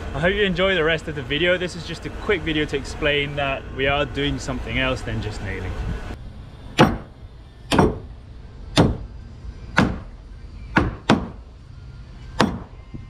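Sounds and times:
hammer striking nails into wood: 6.8s - 7.1s, 7.7s - 8.1s, 8.8s - 9.1s, 9.8s - 10.1s, 10.8s - 11.4s, 12.4s - 12.7s.

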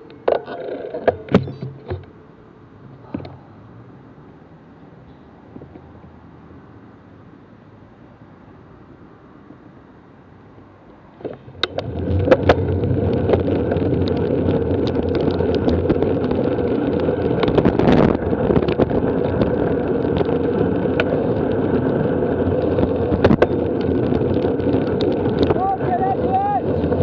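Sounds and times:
faint traffic hum: 0.0s - 27.0s
wind and tyre noise: 0.0s - 27.0s
handlebar clicks and rattles: 11.2s - 25.8s.

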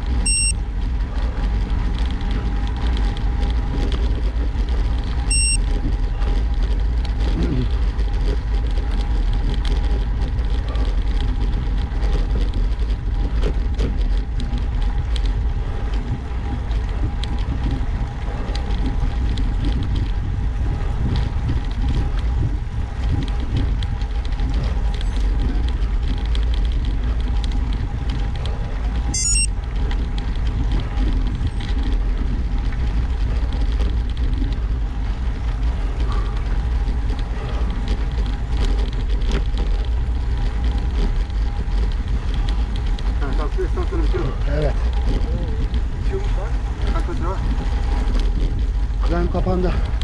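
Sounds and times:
wind rushing over microphone: 0.0s - 50.0s
high-pitched chirps: 0.3s - 0.5s, 5.3s - 5.6s, 29.2s - 29.5s.

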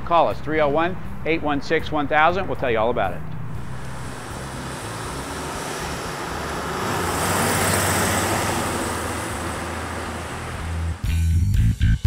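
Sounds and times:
car driving past: 3.3s - 11.2s.

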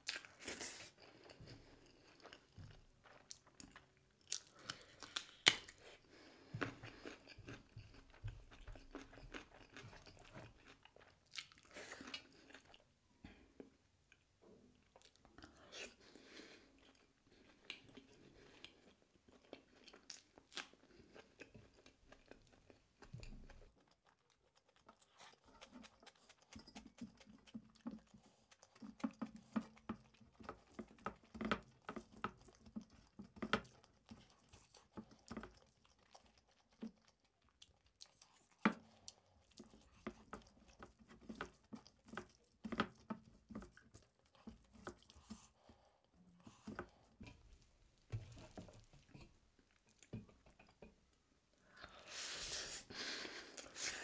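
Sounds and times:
person chewing food: 0.0s - 52.1s
fingers mixing rice on metal plate: 24.2s - 37.2s, 38.0s - 45.8s.

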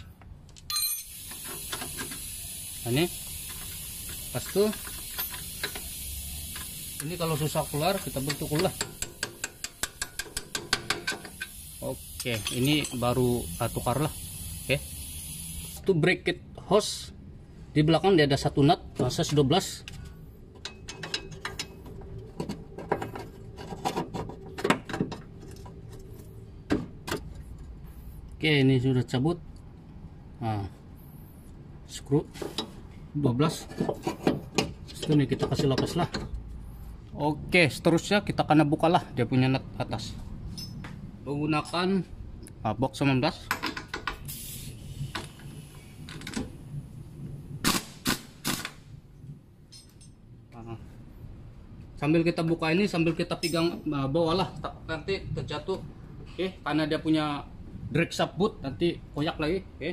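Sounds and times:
ratchet wrench clicking: 0.9s - 15.8s.

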